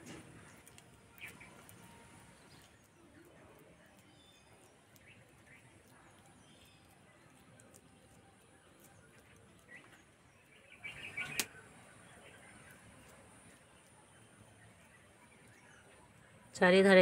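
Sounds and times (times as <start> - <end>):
bird chirps: 0.4 - 3.2, 8.8 - 16.2
sharp chirps and clicks: 0.4 - 16.4.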